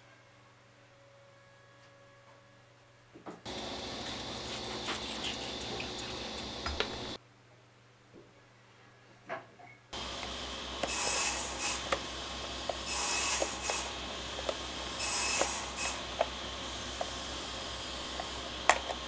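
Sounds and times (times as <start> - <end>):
knife scratching through plastic cup: 3.5 - 7.1
steady low hum: 3.5 - 7.4, 10.0 - 19.0.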